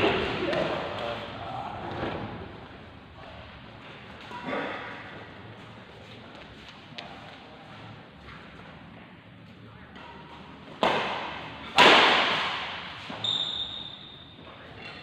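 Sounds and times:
high-pitched squeak: 13.2s - 14.3s.

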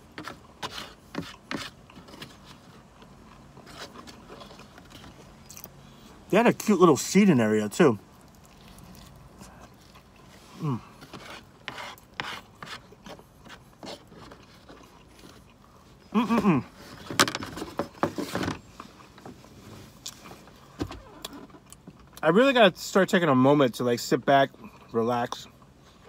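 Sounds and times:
chewing: 8.1s - 11.1s, 13.9s - 16.0s.

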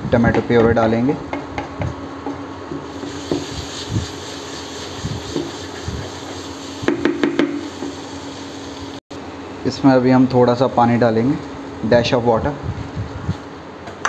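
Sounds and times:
frying hiss: 2.7s - 9.0s.

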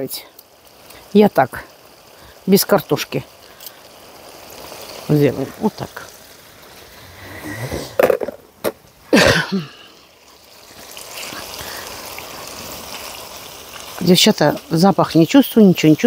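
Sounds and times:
meat sizzling in a pan: 0.0s - 16.0s
person coughing: 9.1s - 9.9s.

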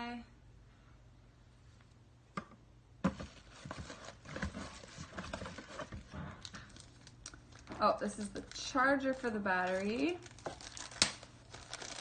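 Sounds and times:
rummaging in cardboard box: 3.1s - 12.0s.

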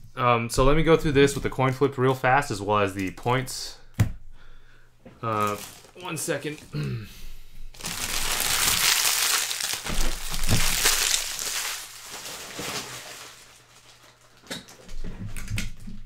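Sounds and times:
packaging crinkling: 5.2s - 6.7s, 7.8s - 14.9s.

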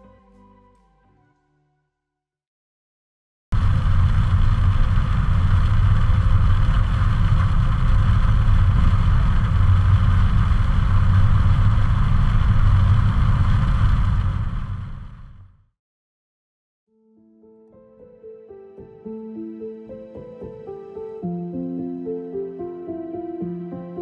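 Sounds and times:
engine and road rumble: 3.6s - 15.4s.

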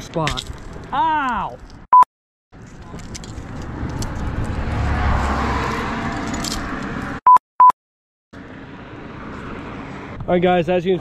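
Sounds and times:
rushing noise with low rumble: 2.6s - 7.2s.

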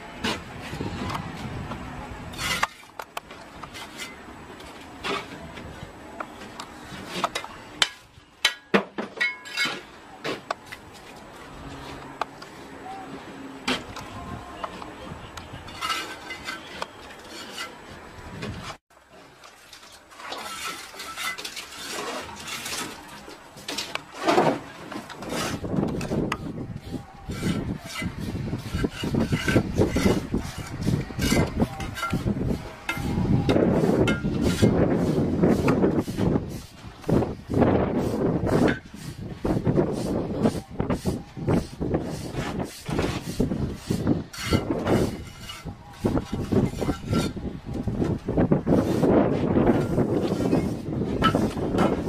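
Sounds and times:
bricks clinking and knocking: 6.9s - 10.7s
trowel clinking on bricks: 7.1s - 10.5s, 15.6s - 17.8s, 20.3s - 24.1s, 27.3s - 33.2s, 49.8s - 52.0s.

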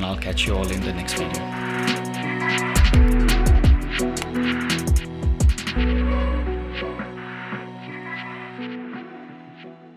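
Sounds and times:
background music with sustained chords: 0.0s - 9.9s.

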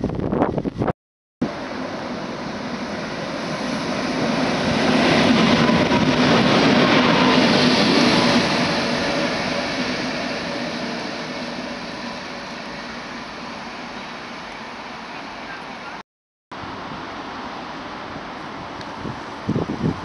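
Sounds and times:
locomotive hum: 1.4s - 16.0s
train wheels rumbling on rails: 1.4s - 16.0s.

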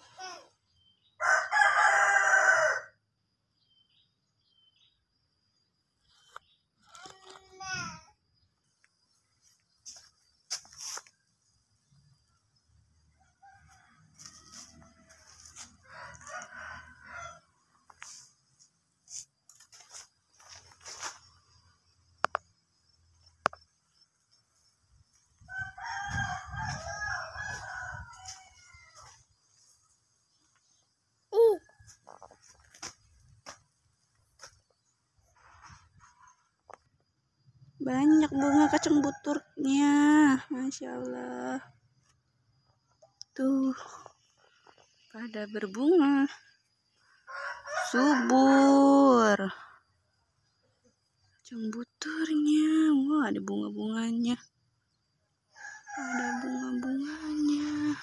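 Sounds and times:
rooster crowing: 1.2s - 3.0s, 13.3s - 17.5s, 25.5s - 29.2s, 47.2s - 48.4s, 55.5s - 58.0s.

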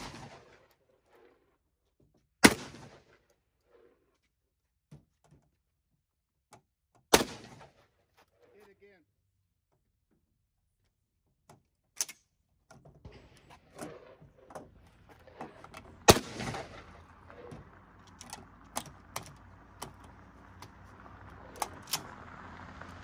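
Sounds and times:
loud sharp crack: 2.4s - 3.2s, 7.1s - 7.8s, 13.1s - 17.9s
metallic clicks of shotgun handling: 12.0s - 12.3s.

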